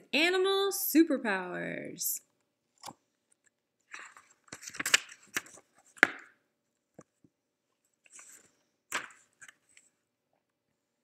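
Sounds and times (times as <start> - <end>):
book pages turning: 3.9 - 6.3, 8.0 - 10.0
paper flaps and snaps: 4.0 - 6.3, 8.9 - 9.6.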